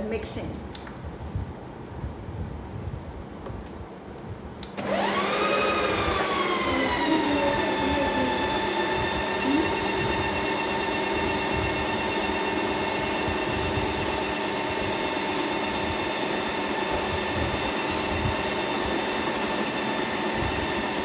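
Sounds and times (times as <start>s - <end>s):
ice cream maker motor whine: 4.8s - 21.0s.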